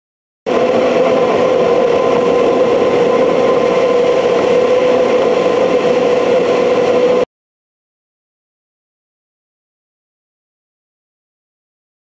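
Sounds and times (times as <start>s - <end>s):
constant hum: 0.5s - 7.2s.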